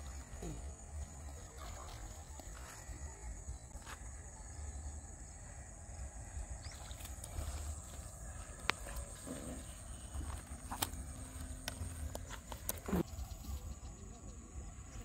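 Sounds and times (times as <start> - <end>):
fish flopping on dry dirt: 6.7 - 13.1.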